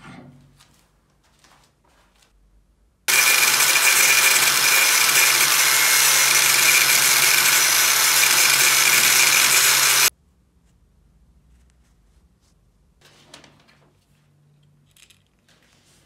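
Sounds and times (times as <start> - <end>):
angle grinder cutting metal: 3.1 - 10.1.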